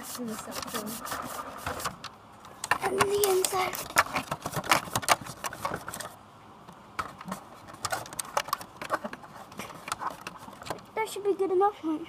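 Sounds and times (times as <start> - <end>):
hand rubbing plastic windshield: 0.0 - 2.0, 3.0 - 6.2, 7.0 - 10.9.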